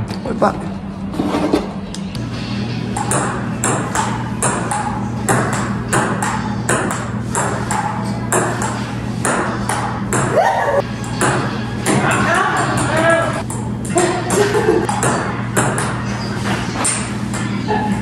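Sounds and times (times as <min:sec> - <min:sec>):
ping pong ball hits: 0:02.9 - 0:16.1.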